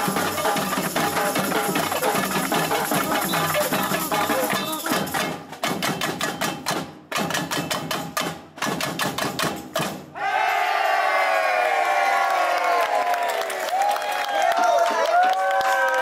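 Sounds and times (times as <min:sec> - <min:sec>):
samba drums playing: 0:00.0 - 0:10.2
loud shouting voices: 0:10.2 - 0:16.0.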